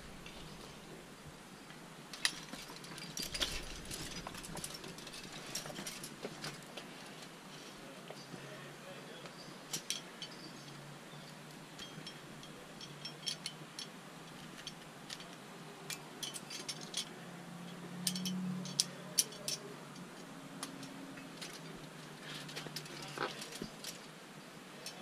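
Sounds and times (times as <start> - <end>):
metal climbing gear clinking: 2.1 - 8.4, 9.3 - 25.0.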